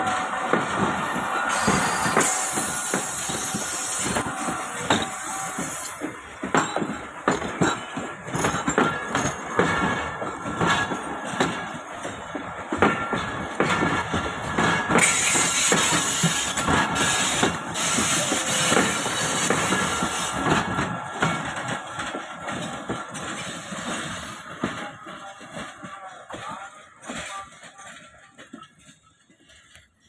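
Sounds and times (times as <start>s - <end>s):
train coaches rumbling past: 0.0s - 30.0s
wheels clacking on rails: 0.0s - 30.0s
loud hiss: 1.4s - 6.1s.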